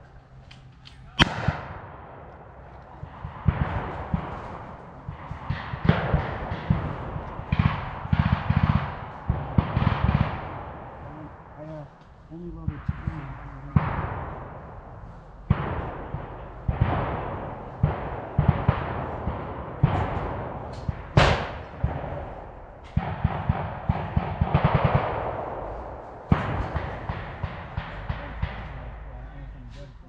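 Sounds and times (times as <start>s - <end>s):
rifle shots echoing: 0.0s - 29.9s
machine-gun burst: 3.1s - 11.0s, 15.5s - 29.1s.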